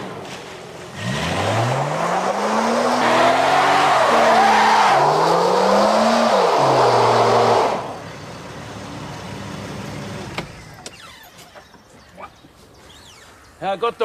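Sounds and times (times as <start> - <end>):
car engine revving: 0.0 - 8.1.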